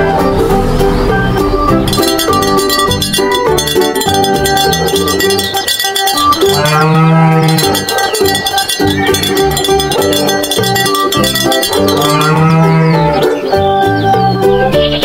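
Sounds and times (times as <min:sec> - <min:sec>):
light plucked music: 0:00.0 - 0:15.0
cow mooing: 0:02.0 - 0:13.2.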